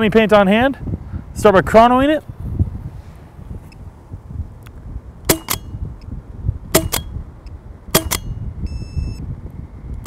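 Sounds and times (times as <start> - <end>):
paintball marker shots: 5.3 - 5.8, 6.7 - 7.2, 7.9 - 8.4
short electronic beep: 8.6 - 9.2.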